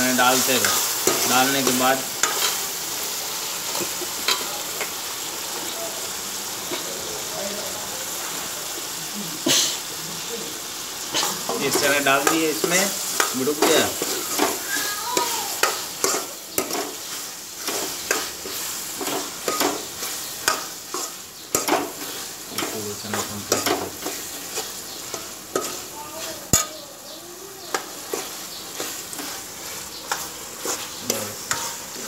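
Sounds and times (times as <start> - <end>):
frying sizzle: 0.0 - 32.0
metal ladle scraping a pan: 27.7 - 32.0.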